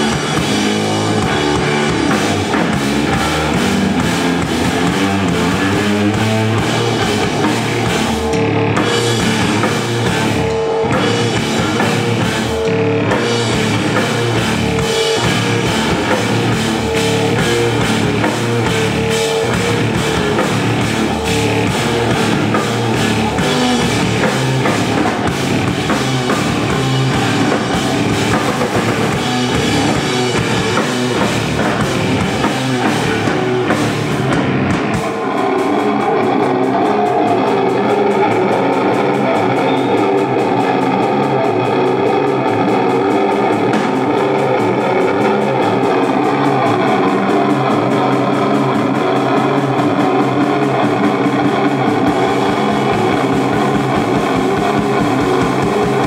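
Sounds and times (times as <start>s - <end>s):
drum kit: 0.0s - 56.0s
electric bass guitar: 0.0s - 56.0s.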